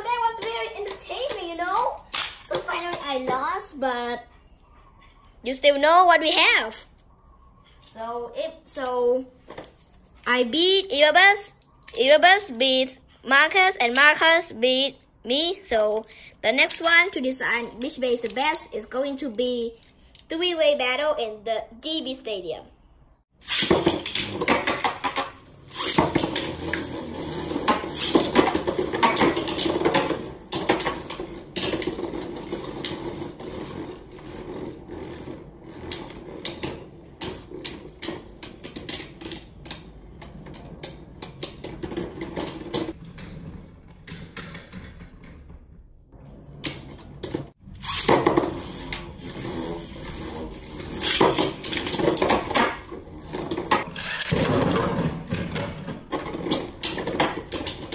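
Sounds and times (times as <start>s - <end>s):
spinning tops whirring and clattering: 47.7s - 55.5s.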